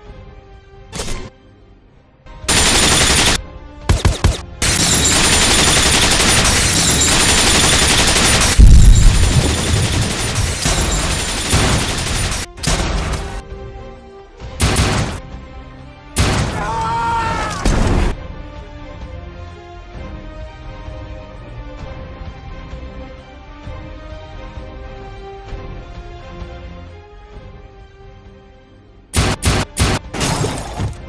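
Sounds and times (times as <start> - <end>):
music: 0.0 - 31.0
automatic gunfire: 2.5 - 13.4, 29.2 - 30.1
heavy boom: 8.6 - 11.0.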